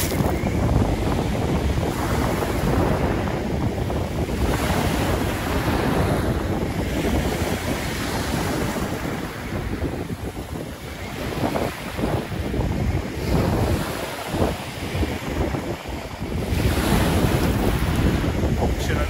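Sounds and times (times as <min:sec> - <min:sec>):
waves breaking on shingle: 0:00.0 - 0:00.4
wind buffeting microphone: 0:00.0 - 0:19.0.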